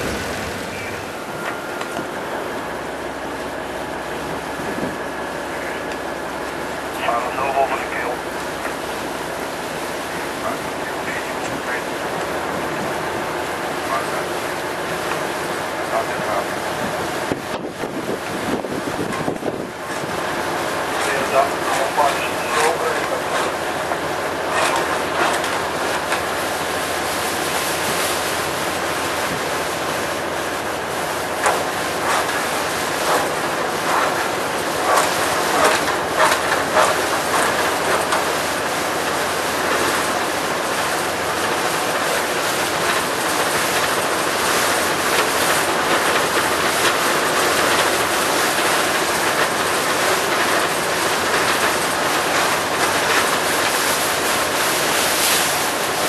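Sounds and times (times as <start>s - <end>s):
rushing churned water: 0.0s - 56.0s
wind on microphone: 4.3s - 5.2s, 16.7s - 20.2s.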